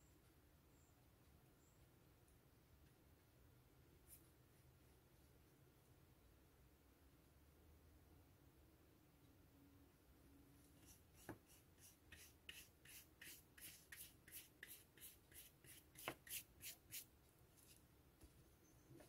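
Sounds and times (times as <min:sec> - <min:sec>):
paintbrush scrubbing: 0:10.8 - 0:17.1.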